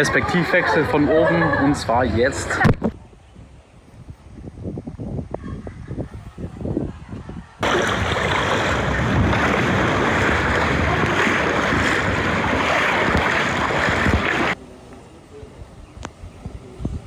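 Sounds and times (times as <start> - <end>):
wind: 0.0 - 17.0
sea water rushing and splashing: 7.6 - 14.6.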